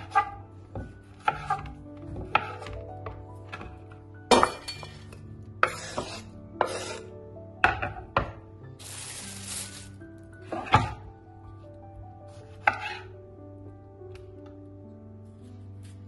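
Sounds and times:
background music: 0:00.0 - 0:16.0
knife scraping across board: 0:01.2 - 0:01.7, 0:05.6 - 0:07.1, 0:12.5 - 0:13.1.

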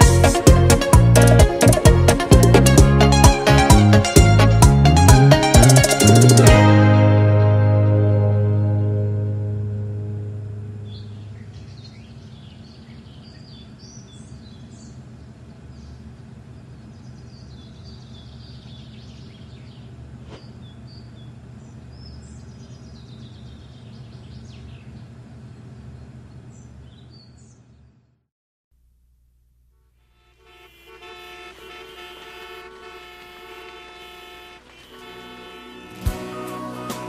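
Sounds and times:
song: 0:00.0 - 0:10.9, 0:34.4 - 0:37.0
steady low hum: 0:08.3 - 0:28.2
birds chirping: 0:10.6 - 0:28.0, 0:30.2 - 0:37.0.

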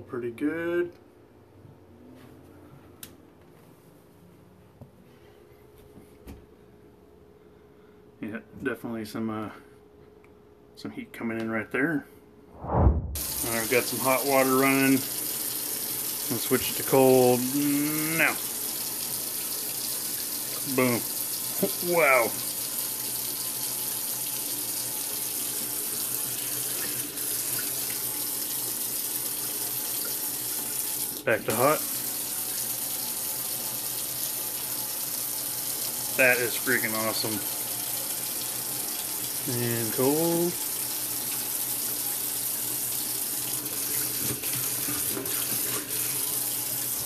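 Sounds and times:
faucet water splashing into sink: 0:13.2 - 0:47.0
tap running water into sink: 0:40.1 - 0:47.0.

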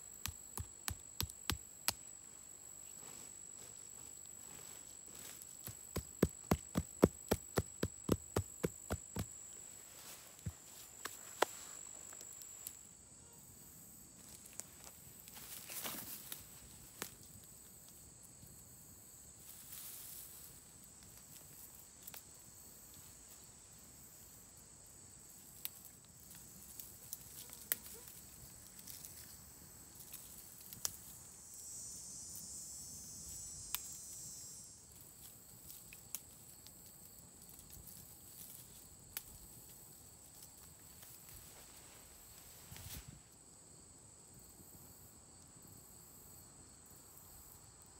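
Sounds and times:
high-pitched insect drone: 0:31.0 - 0:35.3.

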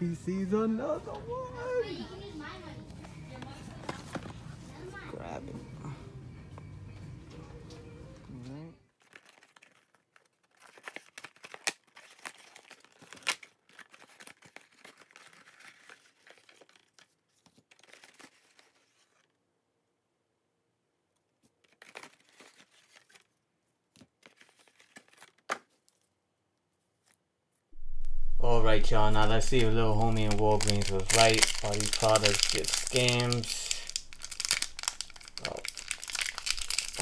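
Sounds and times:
packs rustling: 0:08.9 - 0:19.3, 0:29.1 - 0:37.0
sharp packaging crackle: 0:08.9 - 0:19.3, 0:27.8 - 0:37.0
packaging being torn open: 0:09.0 - 0:19.3, 0:21.6 - 0:23.4, 0:24.1 - 0:26.0, 0:29.2 - 0:37.0.

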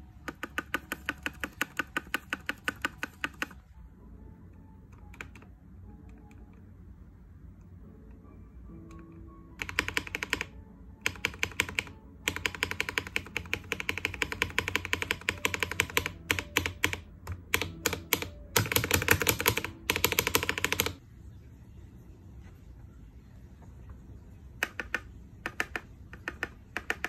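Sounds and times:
mechanical keyboard typing: 0:00.0 - 0:03.8, 0:04.5 - 0:06.6, 0:08.7 - 0:21.0, 0:24.6 - 0:27.0.

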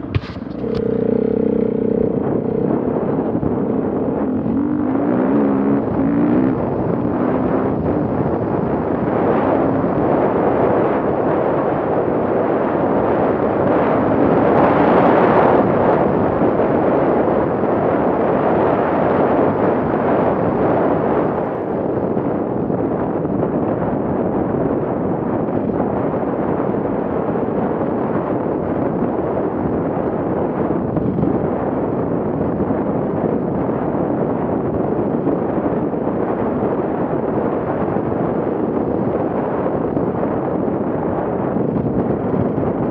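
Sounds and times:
dirt bike engine: 0:00.0 - 0:10.6
tyres on rough dirt track: 0:00.0 - 0:42.9
wind buffeting microphone: 0:00.0 - 0:42.9.

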